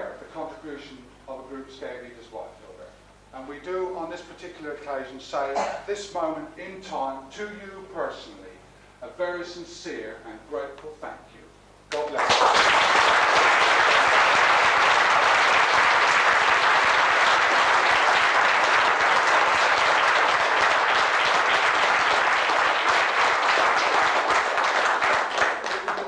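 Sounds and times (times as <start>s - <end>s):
audience applauding: 11.9s - 26.0s.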